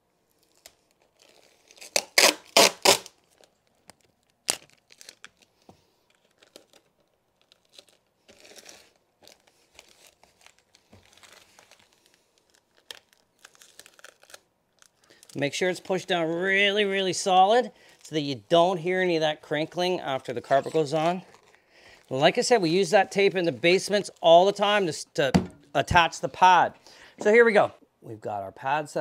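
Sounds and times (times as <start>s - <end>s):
tape crinkling and rustling: 0.2s - 26.0s
tape ripping off a roll: 0.3s - 15.4s.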